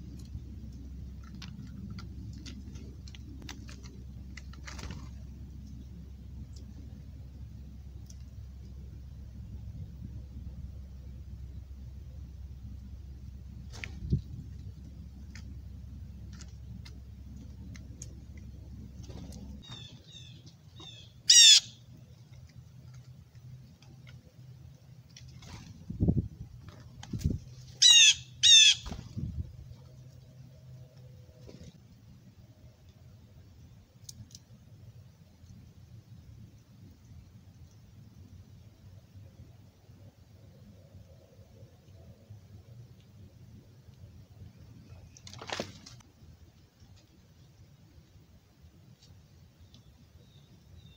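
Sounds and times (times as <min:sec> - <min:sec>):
bird pecking on gravel: 0:00.0 - 0:05.8, 0:13.7 - 0:21.0
steady low rumble: 0:00.0 - 0:50.9
blue jay calling: 0:19.6 - 0:21.9, 0:27.7 - 0:29.0.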